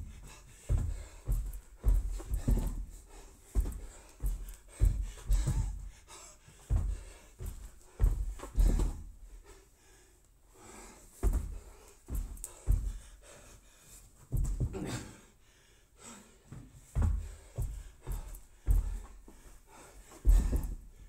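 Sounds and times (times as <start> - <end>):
heavy panting: 0.0 - 21.0
thumps on rubber floor: 0.7 - 2.9, 3.6 - 5.8, 20.2 - 20.8.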